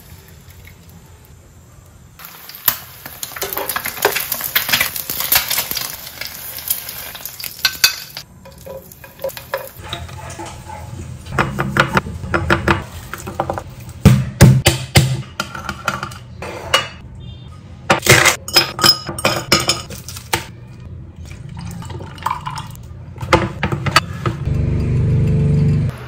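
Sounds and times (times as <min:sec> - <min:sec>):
glass and dishes clinking: 0:18.0 - 0:19.9.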